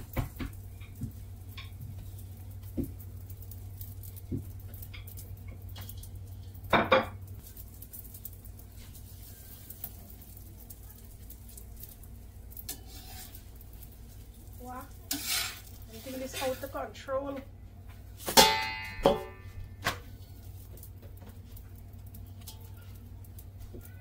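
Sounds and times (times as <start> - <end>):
steady low hum: 0.0 - 24.0
utensils and pans clattering: 15.0 - 16.9, 18.2 - 20.4
person speaking: 15.9 - 17.5.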